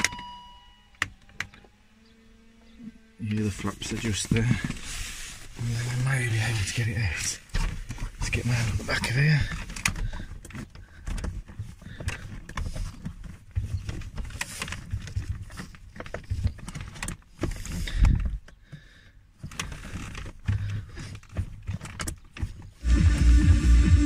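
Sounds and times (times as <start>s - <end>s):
plastic clicks and rubbing: 7.4s - 18.8s, 19.4s - 22.8s.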